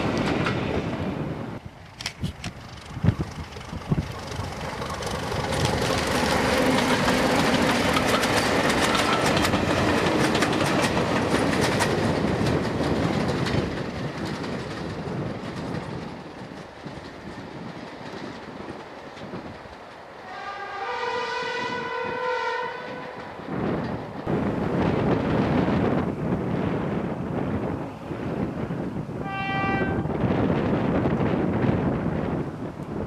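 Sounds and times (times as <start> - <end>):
diesel locomotive engine: 0.0 - 33.0
train wheels clacking over rail joints: 1.9 - 20.1.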